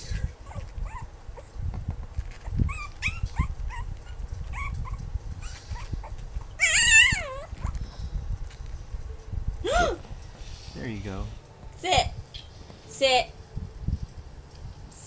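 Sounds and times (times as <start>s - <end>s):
puppy whining: 0.1s - 1.6s, 2.3s - 7.9s
puppy yipping: 0.4s - 1.5s, 2.4s - 7.8s.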